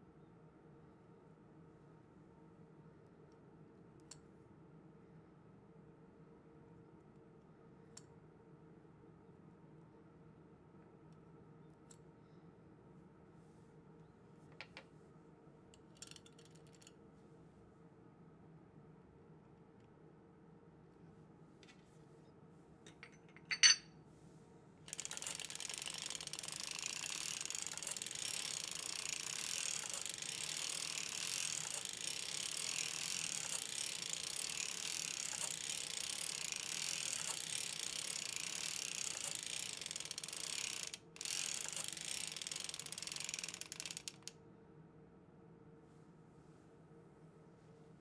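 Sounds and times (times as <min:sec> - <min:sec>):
knitting machine rattling: 0:24.9 - 0:44.3.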